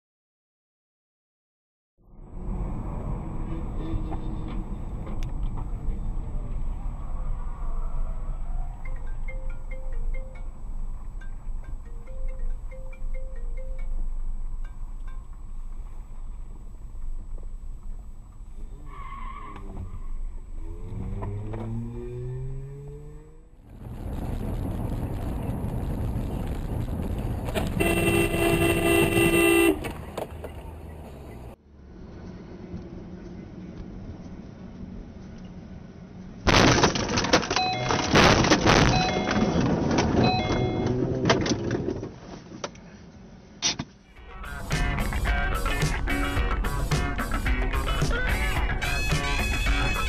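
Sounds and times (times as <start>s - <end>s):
car engine accelerating: 16.1s - 27.8s
car crash bang: 36.5s - 40.2s
short tone: 37.6s - 39.6s, 40.2s - 41.1s.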